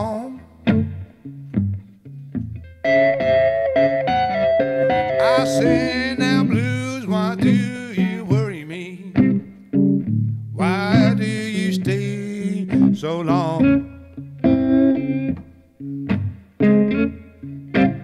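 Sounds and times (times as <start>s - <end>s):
man singing blues: 0.0s - 0.9s, 4.9s - 9.6s, 10.5s - 14.2s
blues electric guitar: 0.0s - 18.0s.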